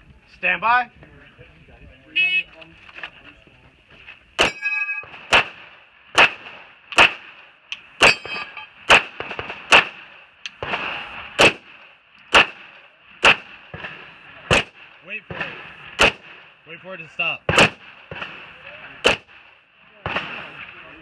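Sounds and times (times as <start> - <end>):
steel targets clanging: 4.4 - 5.3, 7.7 - 8.9
pistol shots: 4.4 - 16.4, 17.5 - 20.8.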